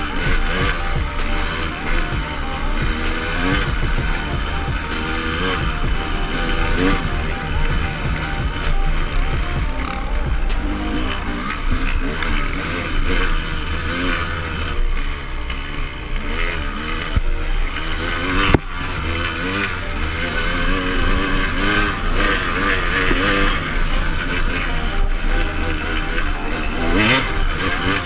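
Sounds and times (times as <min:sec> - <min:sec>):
dirt bike engine revving: 0:00.0 - 0:28.0.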